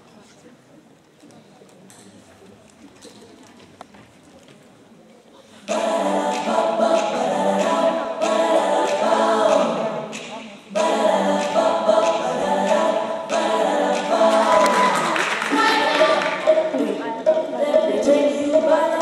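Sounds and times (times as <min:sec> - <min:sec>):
choir singing a cappella: 0:05.6 - 0:19.0.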